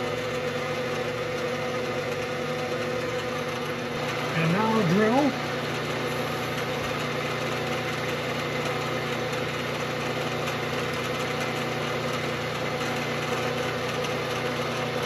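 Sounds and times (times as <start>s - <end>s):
milling machine motor hum: 0.0s - 15.0s.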